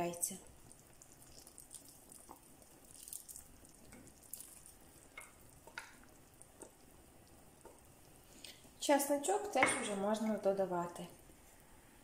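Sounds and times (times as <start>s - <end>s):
soup simmering in pot: 0.0s - 12.0s
food plopping into soup: 0.4s - 7.9s.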